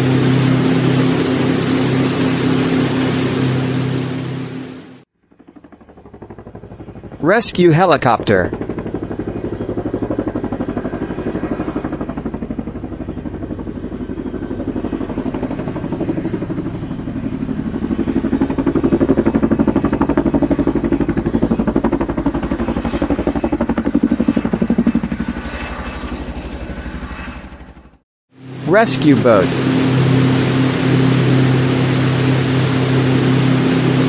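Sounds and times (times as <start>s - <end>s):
turbine engines running: 0.0s - 5.0s, 24.9s - 34.0s
helicopter rotor chopping: 0.0s - 34.0s.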